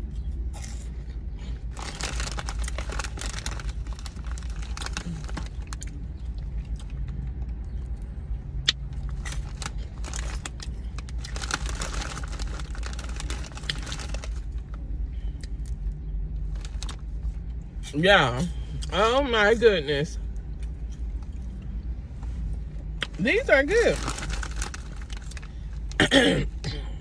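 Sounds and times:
low car hum: 0.0s - 27.0s
crunchy chewing: 0.2s - 14.7s
snack bag crinkling: 1.7s - 6.9s, 9.0s - 14.7s, 16.5s - 17.0s, 23.0s - 25.7s.

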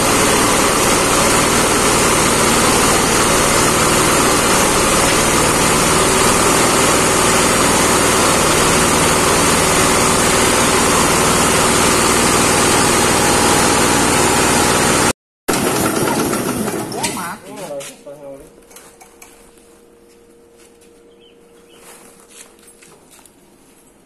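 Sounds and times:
diesel engine beat: 0.0s - 16.8s
feed grinder grinding: 0.0s - 17.4s.

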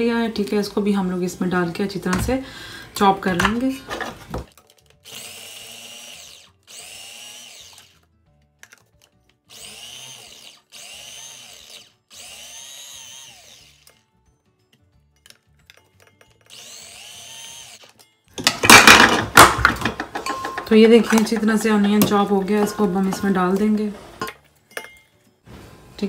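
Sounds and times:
electric food chopper whining: 5.0s - 8.1s, 9.4s - 14.1s, 16.3s - 18.0s.

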